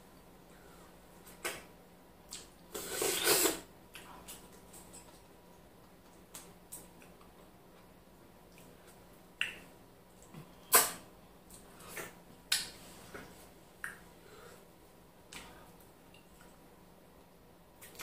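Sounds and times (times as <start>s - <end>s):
mouth smacks: 2.3s - 4.4s.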